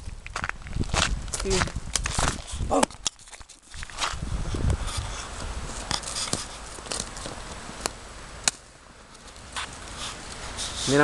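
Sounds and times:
icy snow crunching and cracking: 0:00.0 - 0:08.0.

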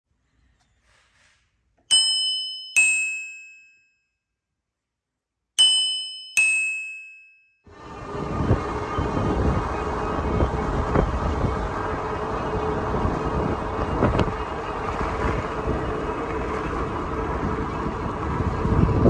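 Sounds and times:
bicycle bell ding-dong: 0:01.9 - 0:04.0, 0:05.6 - 0:07.6.

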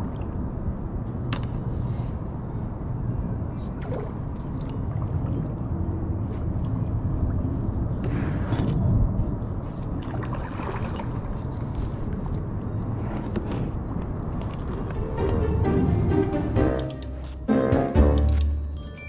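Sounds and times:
paddle splashing water: 0:09.9 - 0:11.6.

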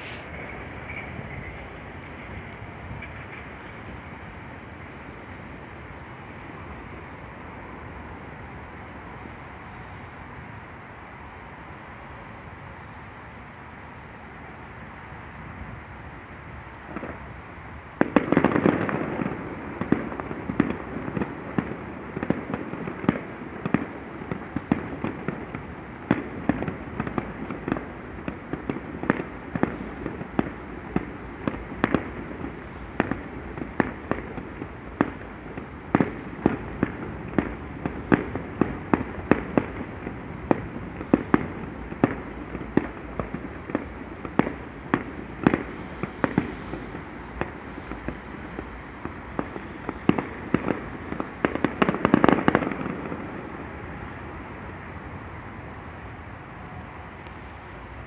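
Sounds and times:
fireworks bangs and pops: 0:00.0 - 0:07.2, 0:16.8 - 0:55.3.

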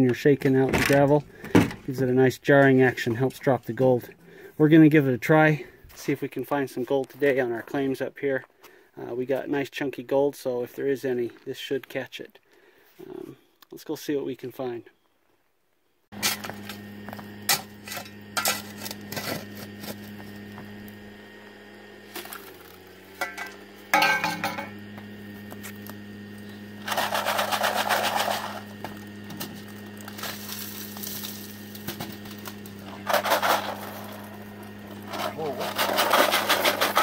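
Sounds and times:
gravel scraping: 0:16.1 - 0:37.0
steady low hum: 0:16.2 - 0:37.0
metal tool clinking on stones: 0:23.2 - 0:24.7.

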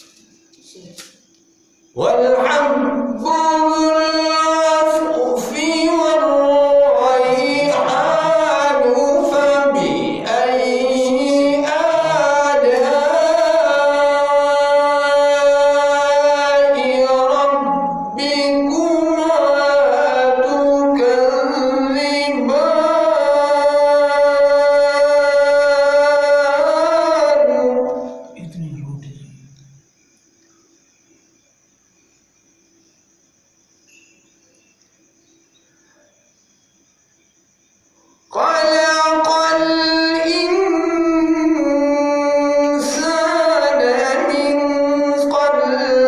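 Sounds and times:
man chanting melodically: 0:01.9 - 0:29.6, 0:38.3 - 0:46.0.

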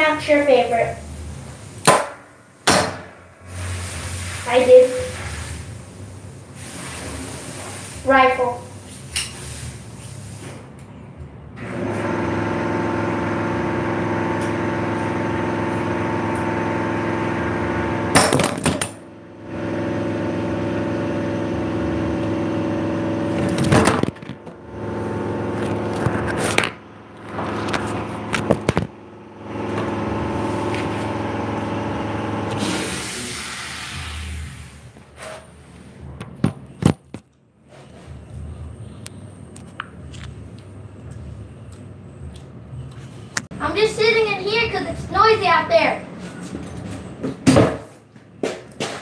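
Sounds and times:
pitched mechanical hum: 0:00.0 - 0:49.0
clattering knocks and scrapes: 0:25.5 - 0:29.0.

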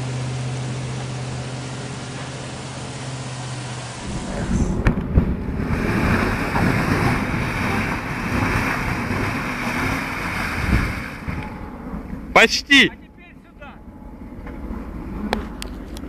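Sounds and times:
engine under load: 0:00.0 - 0:16.0
wheels spinning in snow: 0:01.9 - 0:11.5
wind rumble on microphone: 0:04.0 - 0:09.8, 0:10.4 - 0:12.2.

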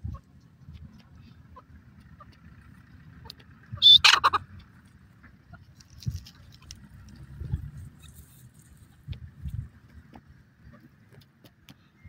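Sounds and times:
low rumble: 0:00.0 - 0:10.6
francolin call: 0:03.7 - 0:04.5.

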